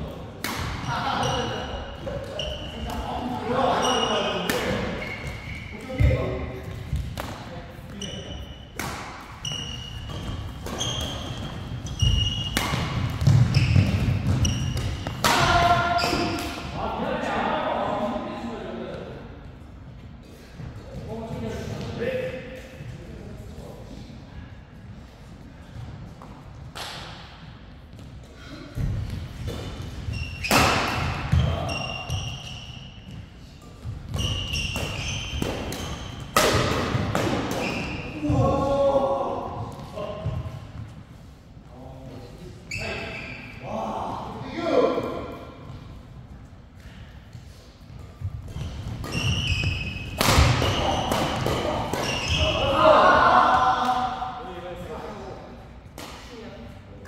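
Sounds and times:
rackets hitting shuttlecock: 0:00.4 - 0:00.9, 0:08.7 - 0:16.7, 0:29.4 - 0:32.2, 0:33.1 - 0:38.1, 0:47.9 - 0:52.5
shoes squeaking on court: 0:03.7 - 0:07.0, 0:07.8 - 0:15.2, 0:29.4 - 0:38.2, 0:46.9 - 0:52.6
racket striking shuttlecock: 0:48.5 - 0:52.3.

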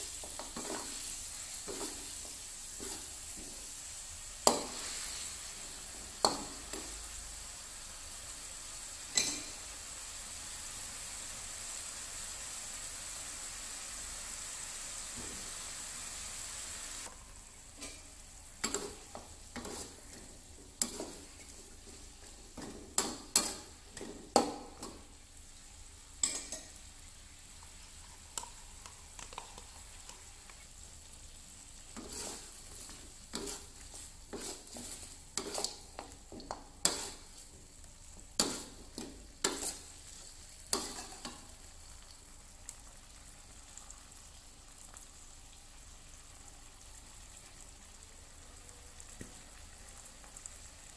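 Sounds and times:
food sizzling in a wok: 0:00.0 - 0:50.9
utensil scraping a pan: 0:18.6 - 0:20.2, 0:20.8 - 0:22.0, 0:32.0 - 0:36.1, 0:36.8 - 0:37.4, 0:39.4 - 0:39.9.

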